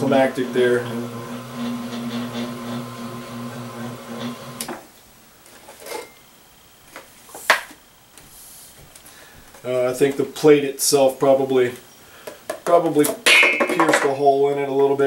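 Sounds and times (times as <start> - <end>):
electric motor humming: 0.0 - 4.7.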